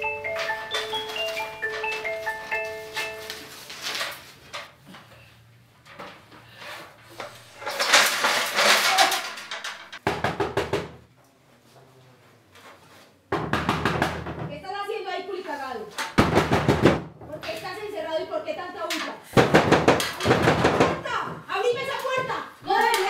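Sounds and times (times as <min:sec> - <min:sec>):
ladder rustling and scraping: 0:00.0 - 0:10.0.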